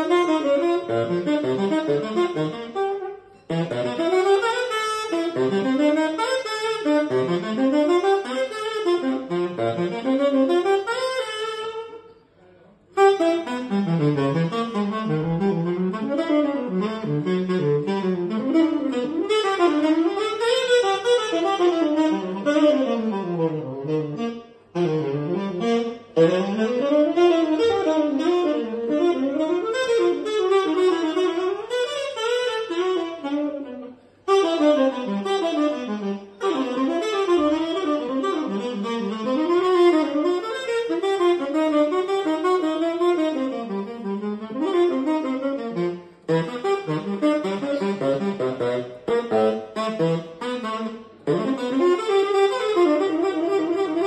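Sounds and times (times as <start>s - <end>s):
tenor saxophone playing jazz: 0.0s - 54.0s.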